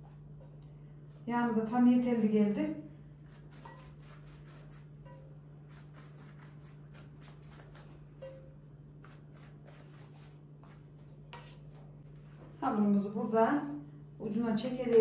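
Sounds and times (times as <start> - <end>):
steady low hum: 0.0 - 15.0
pastry brush strokes on dough: 3.2 - 12.0.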